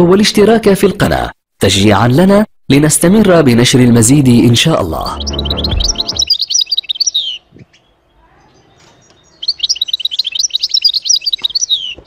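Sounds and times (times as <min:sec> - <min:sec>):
goldfinch twittering song: 0:04.9 - 0:12.0.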